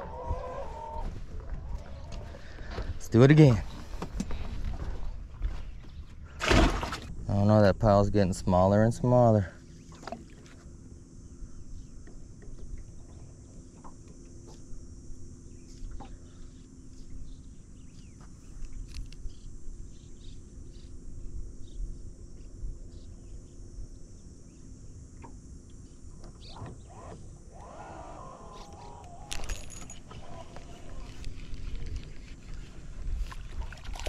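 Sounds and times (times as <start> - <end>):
faint low hum: 0.0 - 34.0
high insect drone: 7.3 - 34.0
wind rumble on microphone: 27.6 - 34.0.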